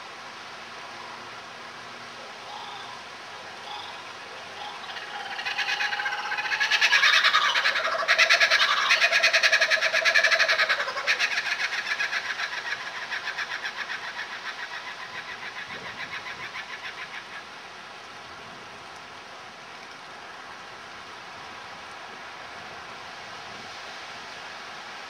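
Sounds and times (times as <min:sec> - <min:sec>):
kookaburra laughing call: 0:02.4 - 0:17.4.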